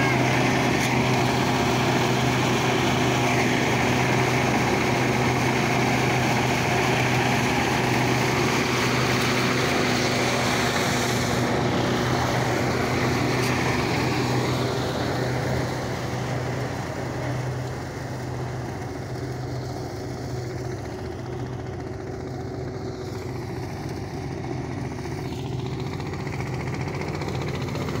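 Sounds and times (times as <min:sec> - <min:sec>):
thresher whirring: 0:00.0 - 0:22.0
tractor diesel engine running: 0:00.0 - 0:28.0.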